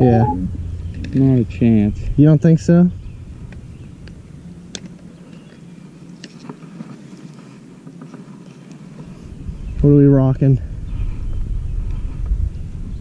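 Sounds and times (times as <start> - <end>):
faint low hum: 0.0 - 7.3.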